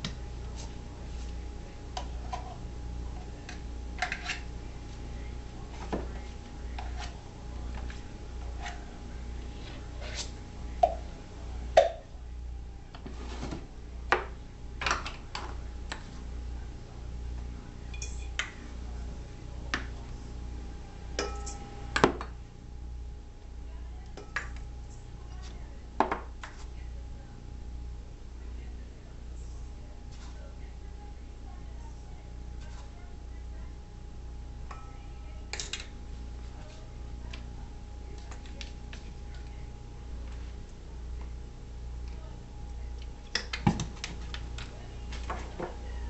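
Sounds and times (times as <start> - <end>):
steady low hum: 0.0 - 46.0
metal bowl clinks and knocks: 21.2 - 21.7.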